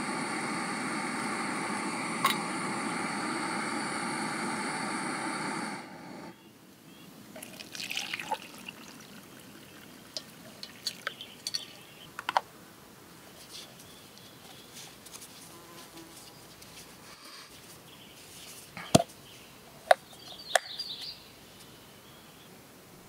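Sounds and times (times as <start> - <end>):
faint buzz: 0.0 - 6.6
metal pot and mug clinking: 7.4 - 11.9.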